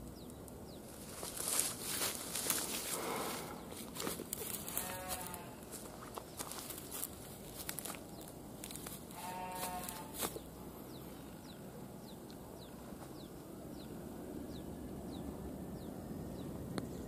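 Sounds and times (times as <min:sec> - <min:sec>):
bird chirping: 0:00.0 - 0:05.4, 0:06.0 - 0:17.0
outdoor background noise: 0:00.0 - 0:17.0
farm animal call: 0:02.8 - 0:05.8, 0:09.1 - 0:11.6.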